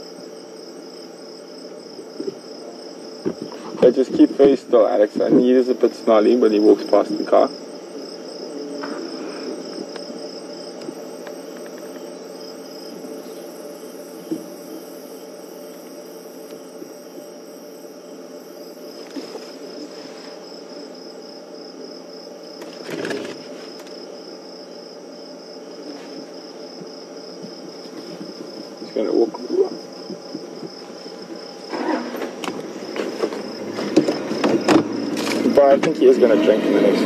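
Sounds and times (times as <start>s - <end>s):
crickets chirping: 0.0s - 37.0s
steady low hum: 0.0s - 37.0s.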